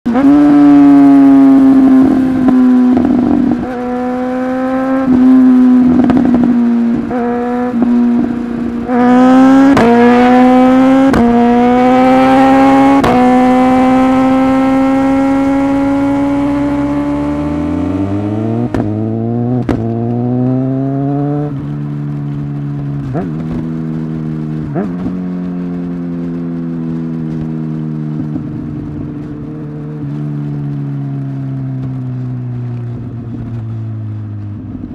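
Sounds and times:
motorcycle engine revving: 0.1 - 34.9
sharp pops on upshifts: 18.6 - 19.0, 19.6 - 20.2.

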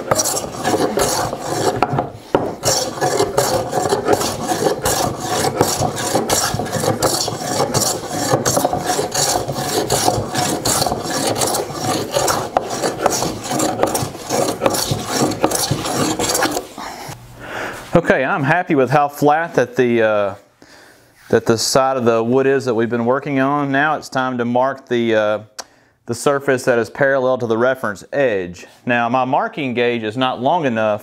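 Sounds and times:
plane shaving wood: 0.0 - 16.8.

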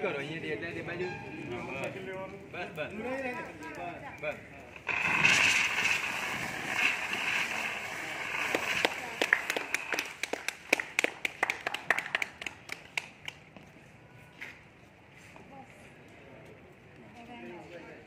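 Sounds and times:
fire extinguisher hissing: 4.8 - 10.3.

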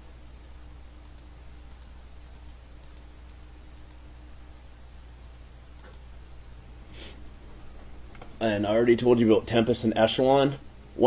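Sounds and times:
faint low hum: 0.0 - 11.0
computer clicks: 1.0 - 4.0, 5.8 - 6.1.

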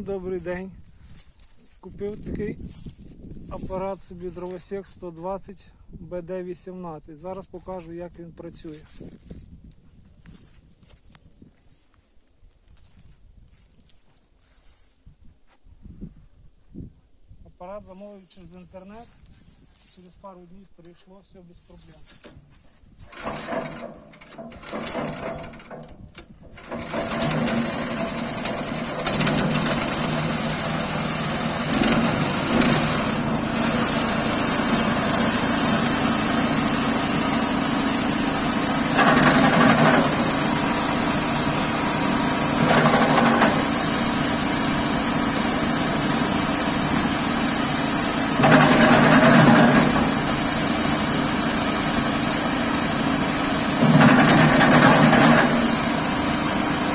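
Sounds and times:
chipper chopping branches: 22.0 - 56.9
petrol engine starting and running: 23.0 - 56.9.

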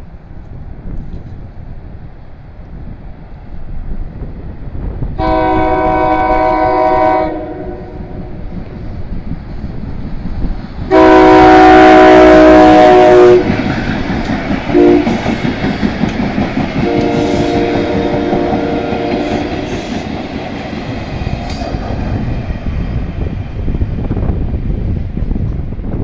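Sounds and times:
train wheels rumbling on rails: 0.0 - 26.0
train horn blasts: 5.2 - 8.4, 10.9 - 13.6, 14.7 - 15.2, 16.8 - 20.0.

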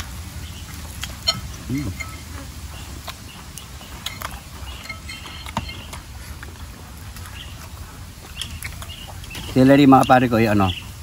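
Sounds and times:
chewing and smacking: 0.0 - 10.8
faint bird chirps: 0.4 - 6.1.

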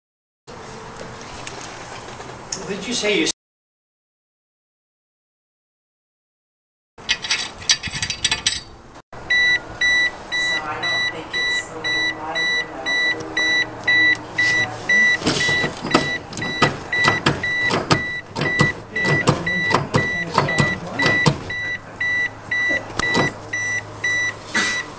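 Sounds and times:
car warning chime beeping: 9.2 - 24.9
brake pedal clicks and knocks: 15.2 - 21.6.

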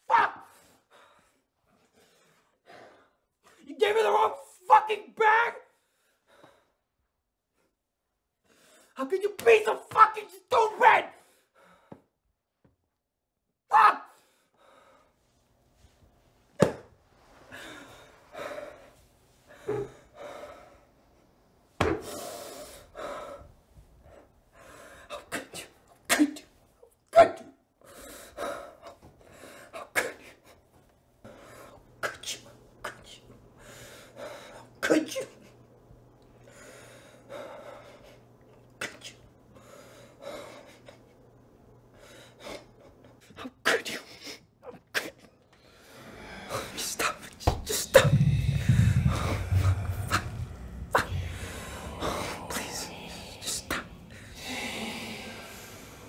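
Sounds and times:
faint low hum: 44.6 - 56.0.

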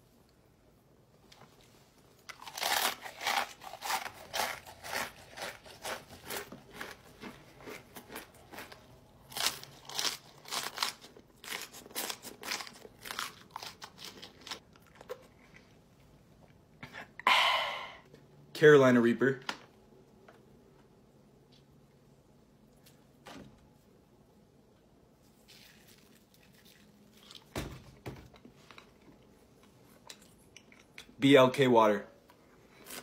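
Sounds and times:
chewing raw chili peppers: 2.2 - 15.8
crunching and chewing chips: 2.2 - 15.8, 25.4 - 27.6.

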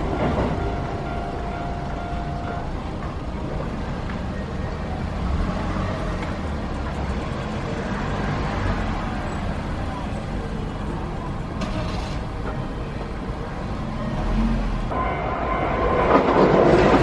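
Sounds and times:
cars passing close by: 0.0 - 17.0
low traffic rumble: 0.0 - 17.0.

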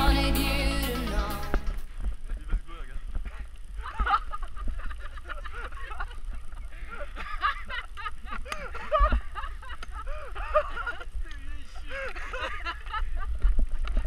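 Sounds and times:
people laughing: 3.8 - 13.5.

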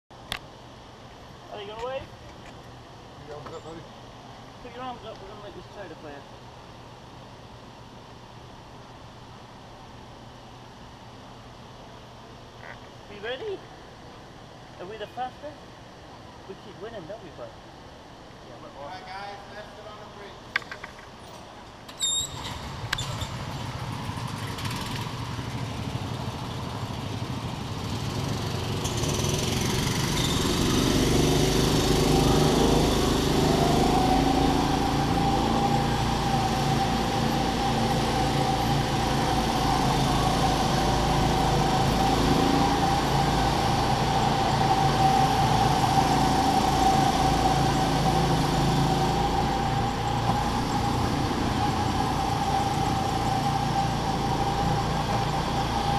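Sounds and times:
go-kart motor with whine: 21.9 - 55.9.

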